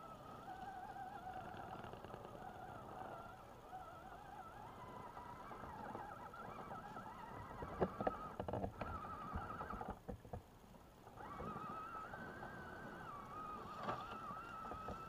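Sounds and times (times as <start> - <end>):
electric motor whining: 0.0 - 10.1, 11.1 - 15.0.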